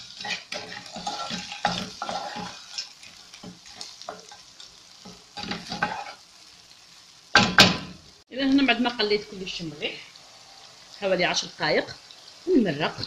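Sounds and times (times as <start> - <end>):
wooden spoon scraping a pan: 0.0 - 6.3
food sizzling in oil: 0.0 - 13.0.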